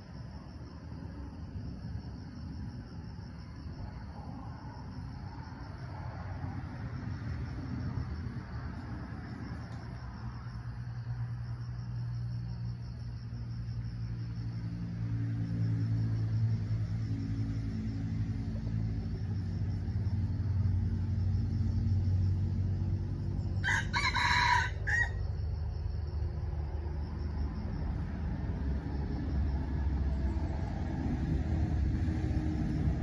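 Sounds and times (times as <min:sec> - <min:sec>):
low engine hum: 0:00.0 - 0:33.0
rooster crowing: 0:23.4 - 0:25.4.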